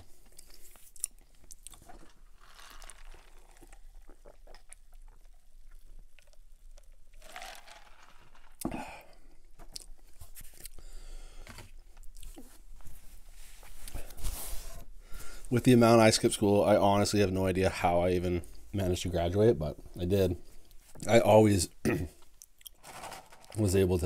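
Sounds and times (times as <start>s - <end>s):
chewing with crunches: 0.2s - 8.7s.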